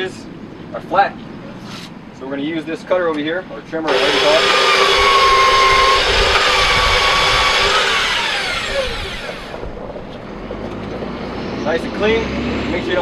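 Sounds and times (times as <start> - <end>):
rotary trimmer running: 3.9 - 9.8
motor spinning down whine: 3.9 - 10.0.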